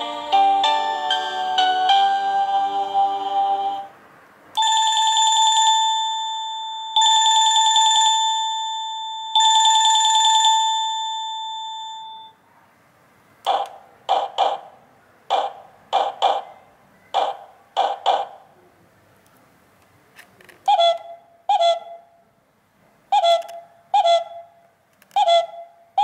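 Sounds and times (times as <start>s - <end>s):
doorbell trilling rings: 4.6s - 12.4s.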